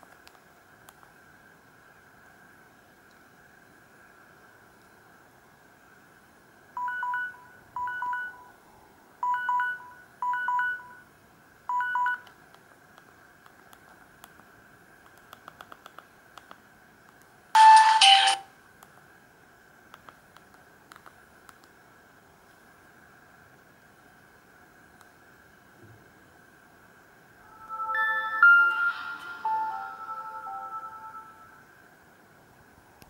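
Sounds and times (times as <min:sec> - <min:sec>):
phone keypad beeps: 0:06.8 - 0:08.5, 0:09.2 - 0:11.0, 0:11.7 - 0:12.2.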